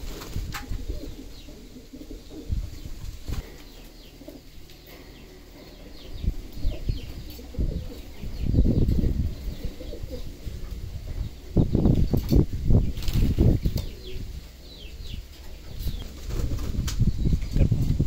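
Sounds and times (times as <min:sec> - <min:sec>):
pigeons flapping wings: 0:00.0 - 0:01.0, 0:12.2 - 0:14.0, 0:15.9 - 0:17.1
pigeons cooing: 0:00.0 - 0:18.0.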